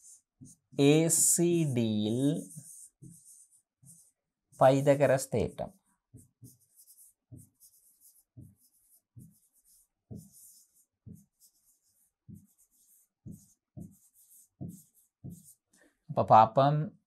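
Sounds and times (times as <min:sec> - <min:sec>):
marker scratching on whiteboard: 0:00.0 - 0:15.7.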